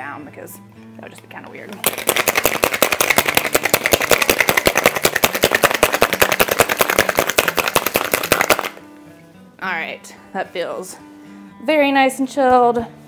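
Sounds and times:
ice rattling in cocktail shaker: 0:01.8 - 0:08.8.

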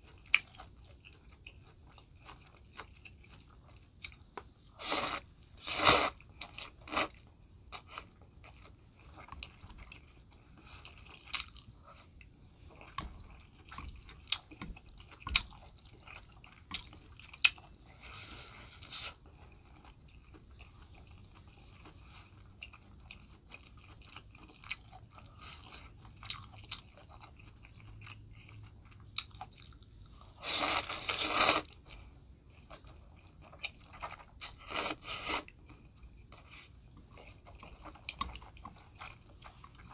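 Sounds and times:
wet chewing: 0:00.0 - 0:39.9
slurping noodles: 0:30.4 - 0:31.7.

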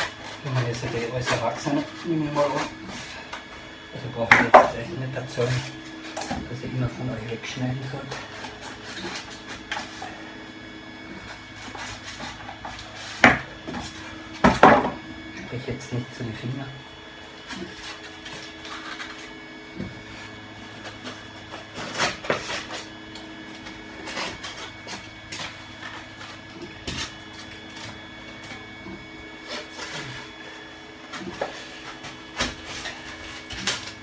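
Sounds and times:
knife cutting foam board: 0:17.4 - 0:22.9.

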